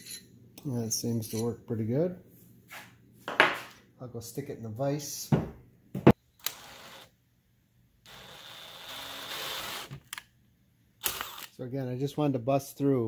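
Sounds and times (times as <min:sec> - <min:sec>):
cordless drill boring plastic pipe: 0:08.1 - 0:10.0.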